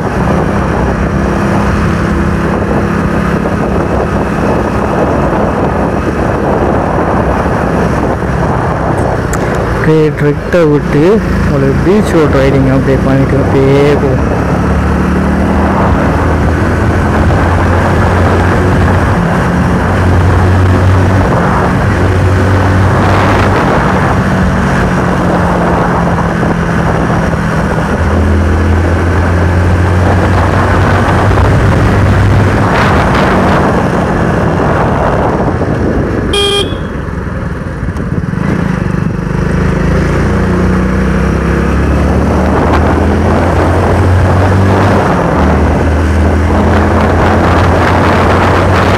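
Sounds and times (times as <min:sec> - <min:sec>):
motorcycle engine running: 0:00.0 - 0:48.9
short horn beep: 0:36.3 - 0:37.0.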